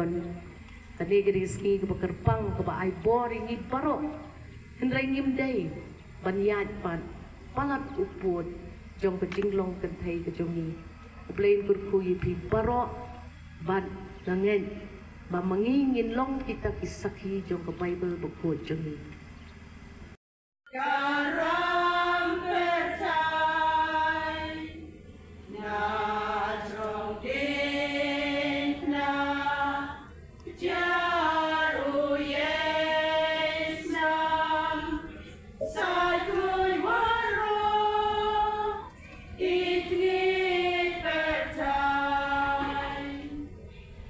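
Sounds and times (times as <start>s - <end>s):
women's choir singing: 20.7s - 43.6s.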